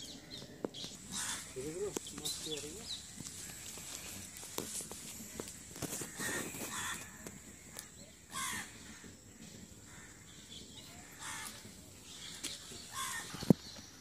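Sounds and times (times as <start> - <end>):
crow cawing: 1.0 - 2.0, 5.8 - 9.2, 9.8 - 11.6, 12.9 - 13.4.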